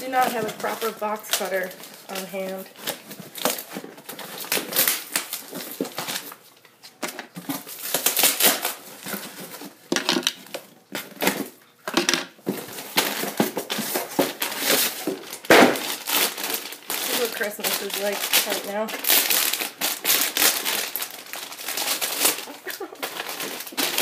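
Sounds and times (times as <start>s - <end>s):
packing tape ripping: 0.0s - 6.4s, 7.0s - 24.0s
cardboard box being torn open: 12.6s - 24.0s.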